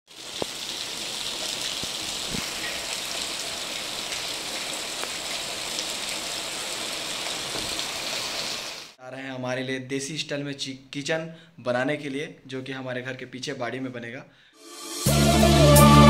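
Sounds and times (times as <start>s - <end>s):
heavy rain pouring: 0.1s - 9.0s.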